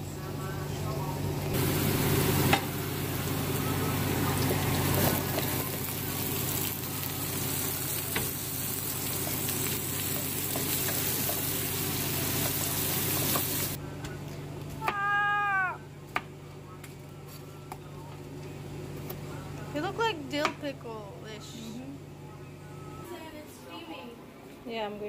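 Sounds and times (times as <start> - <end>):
food sizzling in oil: 1.6 - 13.8.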